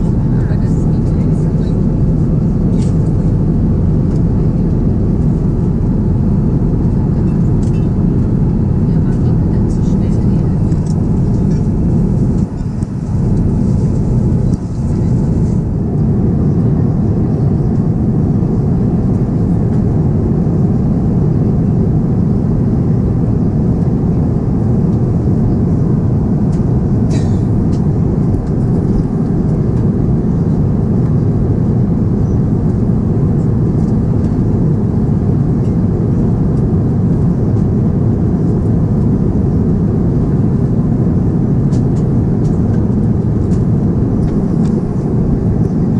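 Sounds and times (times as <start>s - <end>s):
airliner cabin roar: 0.0s - 45.9s.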